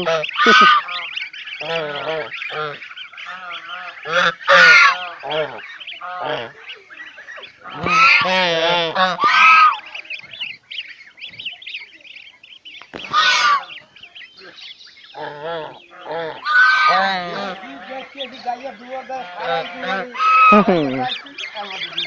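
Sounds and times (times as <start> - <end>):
geese honking: 0.0 - 22.0
goslings peeping: 0.0 - 22.0.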